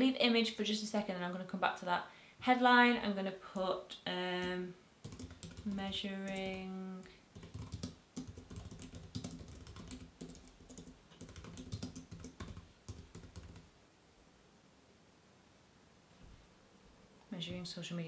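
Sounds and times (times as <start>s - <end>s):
keyboard typing: 4.4s - 6.7s, 7.3s - 13.7s.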